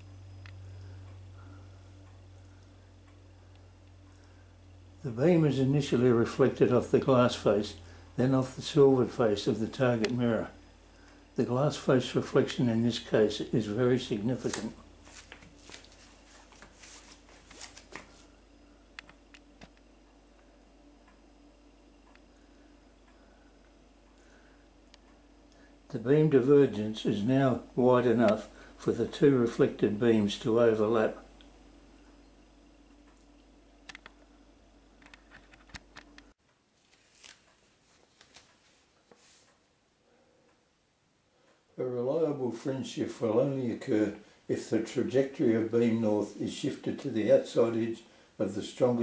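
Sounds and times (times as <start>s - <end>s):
faint ticks: 0.0s - 4.5s
low steady hum: 0.0s - 49.0s
rustling handling noise: 14.3s - 18.4s, 35.0s - 39.6s
soft clicks: 19.0s - 21.3s, 22.0s - 22.3s, 32.9s - 34.3s
small sharp clicks: 33.0s - 34.3s.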